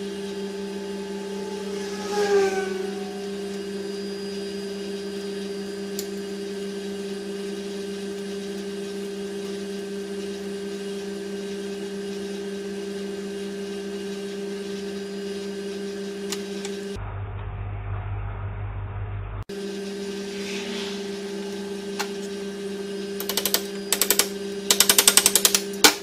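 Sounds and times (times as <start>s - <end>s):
low hum: 0.0s - 6.9s, 16.9s - 24.0s.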